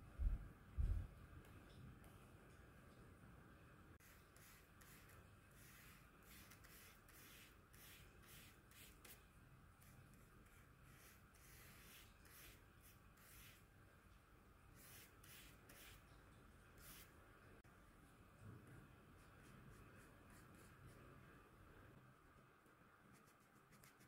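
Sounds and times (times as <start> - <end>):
paintbrush strokes on paper: 4.0 - 13.7, 14.7 - 17.2, 19.1 - 21.4, 23.0 - 24.0.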